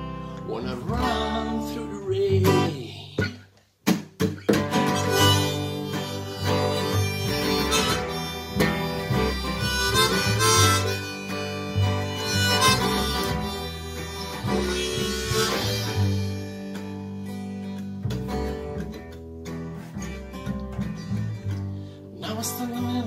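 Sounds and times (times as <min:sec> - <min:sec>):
plucked double bass: 0:00.0 - 0:03.4, 0:04.5 - 0:23.0
strummed acoustic guitar: 0:00.0 - 0:23.0
harmonica solo: 0:04.8 - 0:17.8.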